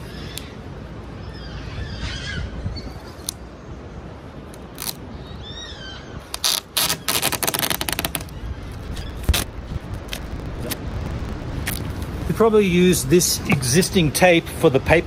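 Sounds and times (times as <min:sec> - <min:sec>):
adhesive tape ripping off roll: 0:04.6 - 0:05.0, 0:06.3 - 0:10.8.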